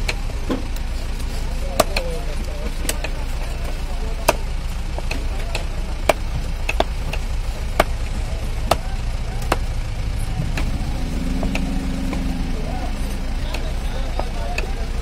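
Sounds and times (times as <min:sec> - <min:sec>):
low background rumble: 0:00.0 - 0:15.0
knife chopping fish on wood: 0:01.8 - 0:04.4, 0:05.0 - 0:08.0, 0:08.7 - 0:09.7.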